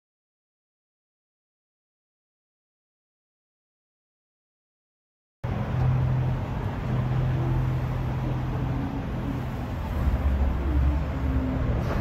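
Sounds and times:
vehicle engine hum: 0:05.4 - 0:12.0.

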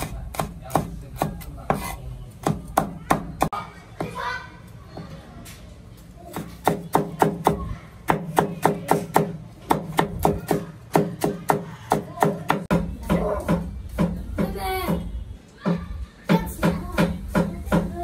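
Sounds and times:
knife chopping on wooden board: 0:00.0 - 0:03.5.

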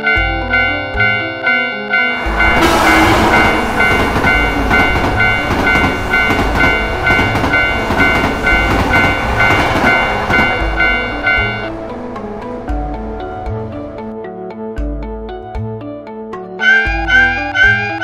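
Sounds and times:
railroad crossing bell clanging: 0:00.0 - 0:14.1, 0:16.6 - 0:18.0
electric train rushing past: 0:00.0 - 0:14.2.

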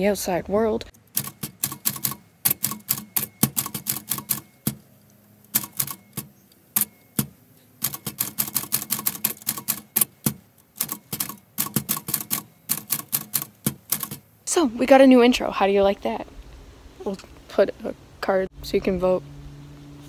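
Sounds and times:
typewriter key strikes: 0:01.1 - 0:04.8, 0:05.5 - 0:14.2.

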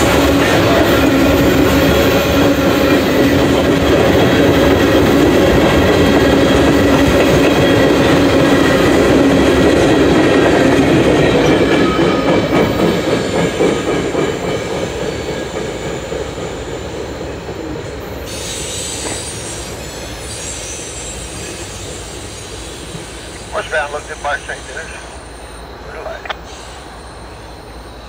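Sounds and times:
freight train wheels rumbling on rail: 0:00.0 - 0:28.0
high squeal: 0:18.2 - 0:23.7.

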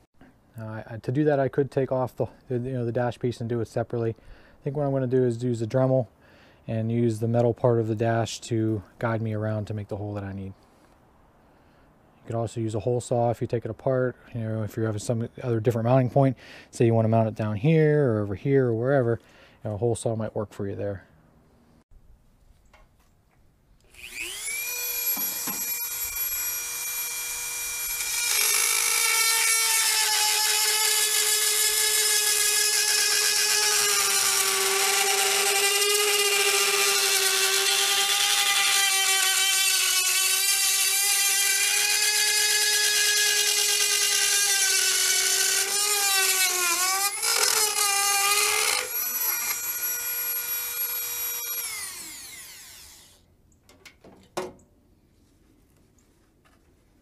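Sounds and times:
rotary tool whining: 0:23.9 - 0:53.2.

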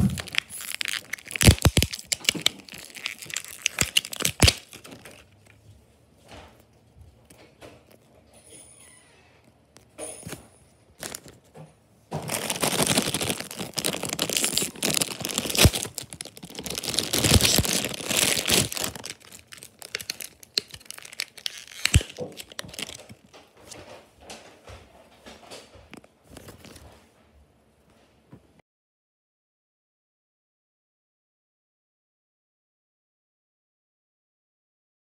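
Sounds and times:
foil packet crinkling: 0:00.0 - 0:05.6, 0:11.0 - 0:11.4, 0:12.2 - 0:23.3.

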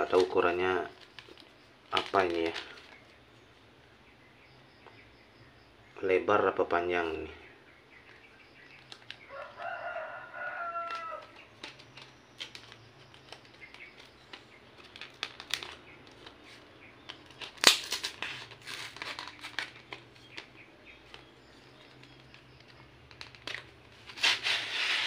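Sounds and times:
cardboard crackle: 0:00.0 - 0:03.0, 0:10.7 - 0:25.0
rooster crowing: 0:09.3 - 0:11.3
cardboard rustling and clicking: 0:10.8 - 0:25.0.

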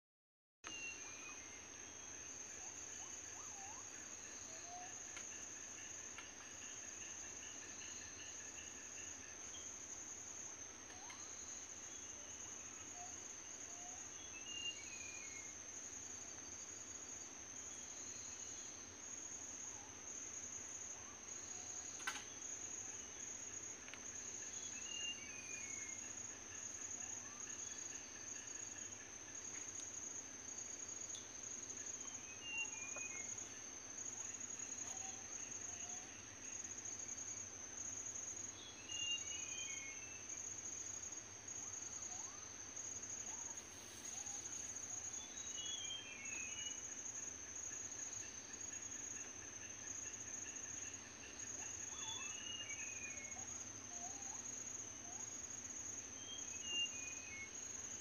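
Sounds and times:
insects droning: 0:00.7 - 0:58.0.

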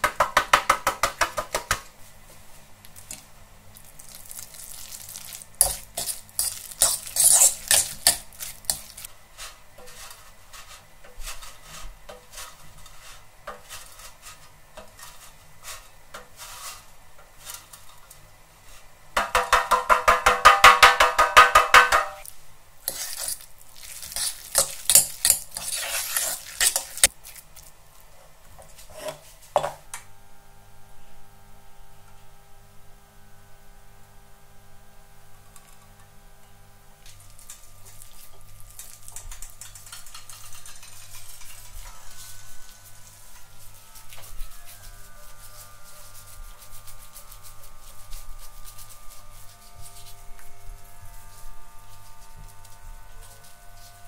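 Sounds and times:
fork scraping in bowl: 0:04.6 - 0:17.9, 0:22.9 - 0:27.4, 0:37.1 - 0:50.5.

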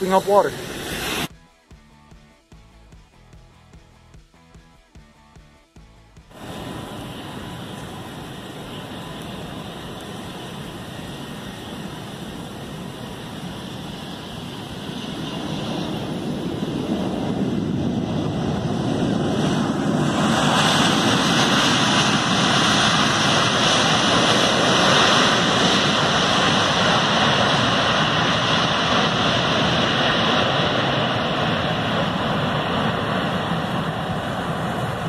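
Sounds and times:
hiss of runway water: 0:00.0 - 0:01.3, 0:06.3 - 0:16.7
jet engines in reverse thrust: 0:00.0 - 0:01.3, 0:06.3 - 0:35.0.

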